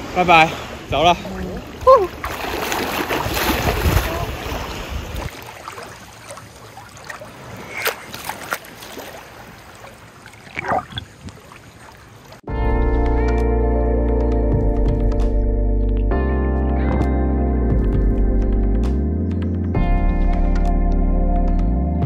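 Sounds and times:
seawater sloshing and splashing: 0.0 - 12.5.

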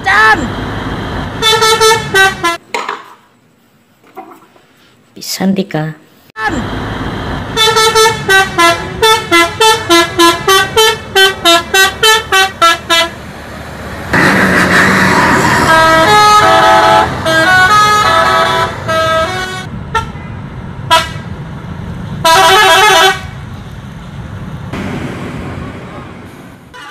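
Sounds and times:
multi-tone bus horns playing tunes: 1.4 - 2.6, 7.4 - 13.2, 14.1 - 21.3, 22.2 - 23.4.

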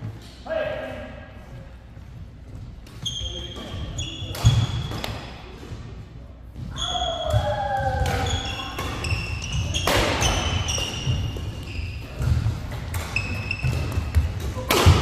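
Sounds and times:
shoes squeaking on court: 2.1 - 5.3, 6.5 - 14.6
racket striking shuttlecock: 9.8 - 11.5, 12.2 - 15.0.

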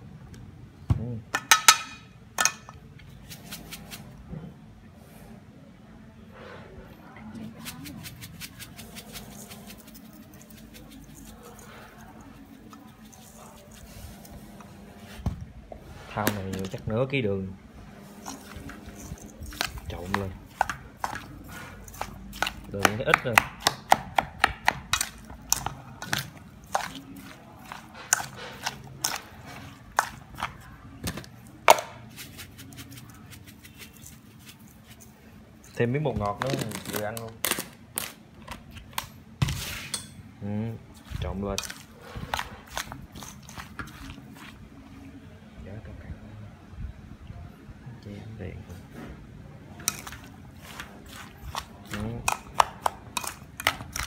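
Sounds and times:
sugar grains pattering: 7.6 - 14.2
metal spoon scraping steel bowl: 18.1 - 22.8, 24.9 - 30.5.

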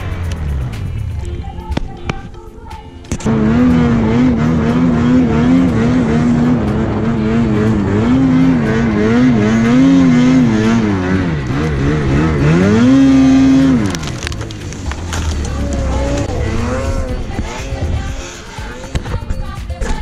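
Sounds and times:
snowmobile engine revving: 3.2 - 19.2.

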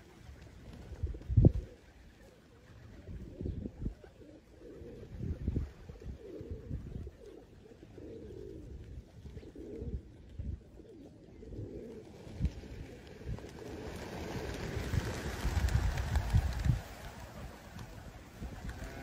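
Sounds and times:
flock of wings flapping: 0.0 - 3.2, 11.8 - 19.0
pigeons cooing: 0.0 - 19.0
wind on microphone: 0.7 - 1.8, 2.8 - 7.3, 11.4 - 19.0.

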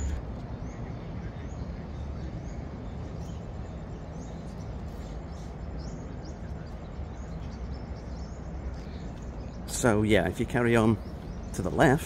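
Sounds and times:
low outdoor rumble: 0.0 - 12.0
small birds chirping: 0.0 - 12.0.

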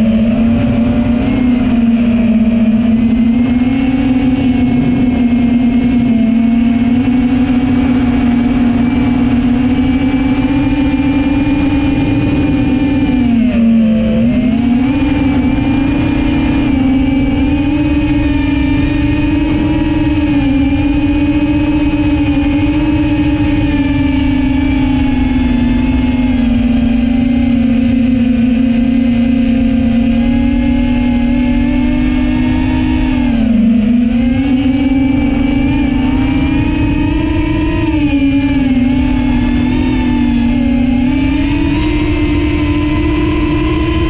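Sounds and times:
quadcopter propellers whining: 0.0 - 44.0.

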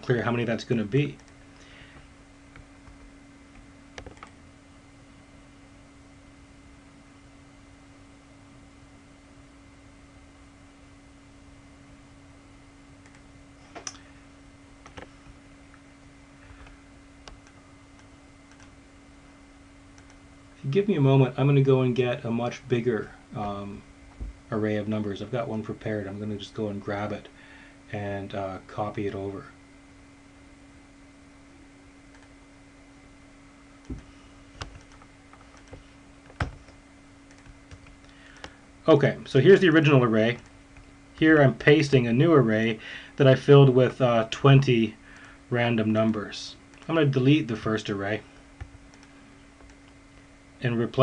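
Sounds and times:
steady low hum: 0.0 - 51.0
computer key and mouse clicks: 4.0 - 4.4, 17.2 - 18.7, 37.3 - 38.5
computer mouse clicks: 4.0 - 4.4, 13.0 - 14.0, 16.6 - 18.7, 20.0 - 20.2, 32.1 - 32.3, 33.8 - 38.6, 48.6 - 50.0.

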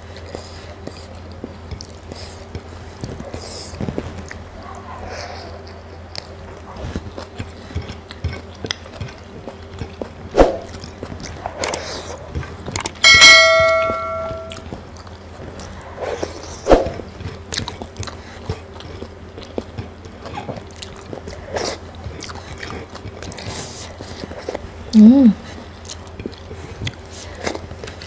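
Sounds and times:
eating with fingers: 0.0 - 13.3, 14.5 - 28.0
bell-like notification chime: 13.1 - 14.6
sharp knocks: 13.1 - 14.6.

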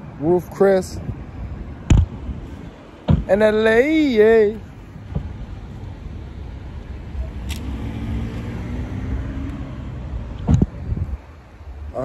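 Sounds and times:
steady low rumble: 0.8 - 12.0
car passing by: 7.2 - 11.2.

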